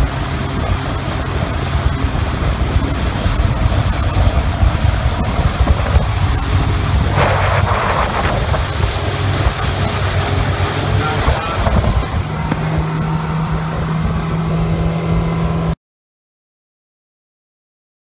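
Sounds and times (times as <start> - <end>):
boat engine rumble: 0.0 - 15.8
water rushing: 0.0 - 15.8
wind buffeting microphone: 0.0 - 15.8.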